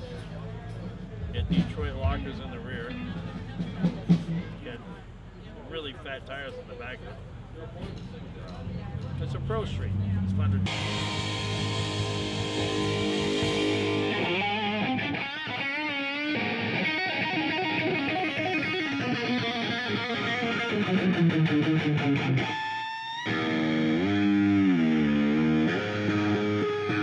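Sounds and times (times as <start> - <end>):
distorted electric guitar: 10.3 - 27.0
rock band playing live: 10.7 - 27.0.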